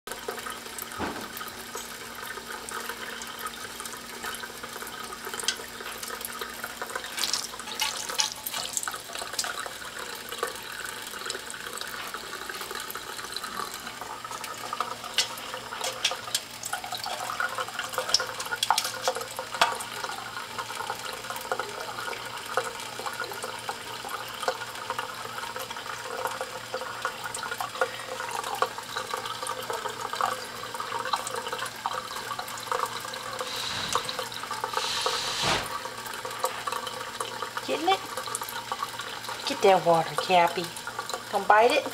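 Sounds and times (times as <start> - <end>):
tap water running into a sink: 0.1 - 41.9
water splashes and ticks: 3.8 - 13.7, 14.4 - 27.9.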